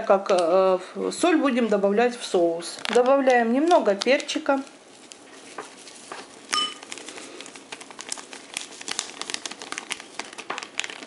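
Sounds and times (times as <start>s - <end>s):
plastic sachet crinkling: 1.6s - 11.0s
clink on ceramic bowl: 6.5s - 6.8s.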